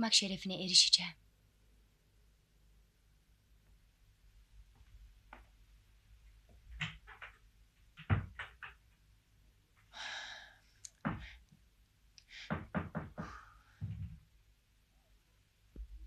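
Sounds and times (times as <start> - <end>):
knocks and thuds: 6.5 - 8.8, 11.0 - 11.4, 12.4 - 14.2.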